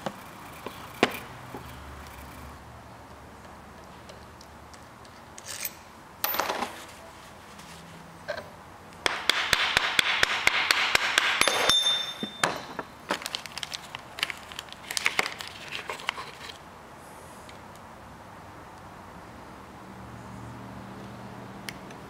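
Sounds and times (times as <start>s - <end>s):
metallic clicks and scraping: 0.0s - 6.8s
short metallic ringing ping: 11.4s - 12.6s.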